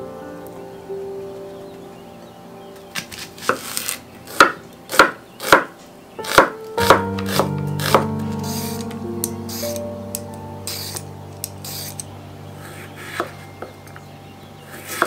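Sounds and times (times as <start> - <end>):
knife chopping onion on board: 4.3 - 8.1.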